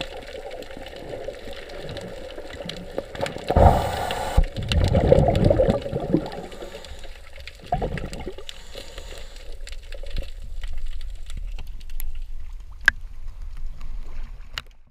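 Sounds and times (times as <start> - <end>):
bubbling water rushing: 0.0 - 9.0
low underwater rumble: 0.7 - 8.7.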